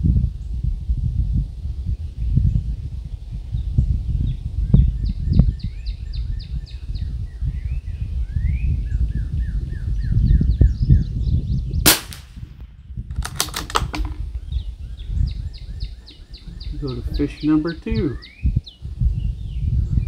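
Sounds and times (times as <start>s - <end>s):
rifle bolt clicks: 11.9s - 12.3s, 13.1s - 14.2s
rifle shot: 11.9s - 14.2s
birds chirping: 12.7s - 20.0s.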